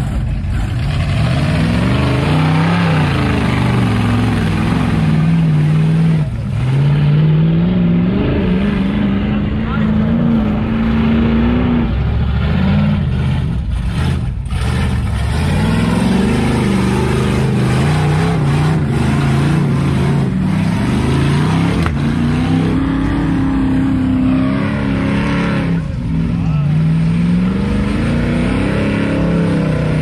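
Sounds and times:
engine revving: 0.0s - 30.0s.

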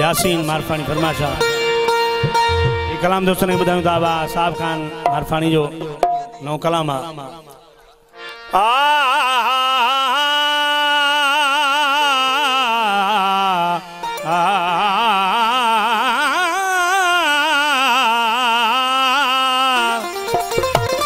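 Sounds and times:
man singing sustained notes: 8.5s - 20.2s.

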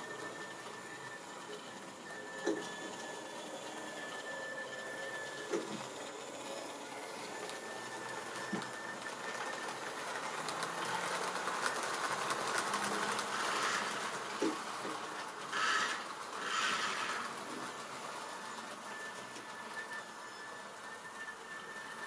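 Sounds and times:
thin steady whine: 0.0s - 22.0s
wheels clicking over rail joints: 6.7s - 19.9s
small electric motor whirring: 12.8s - 14.2s, 15.5s - 17.4s.

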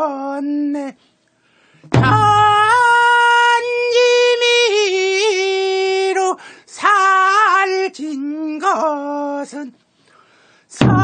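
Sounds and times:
low drum stroke: 1.9s - 2.6s.

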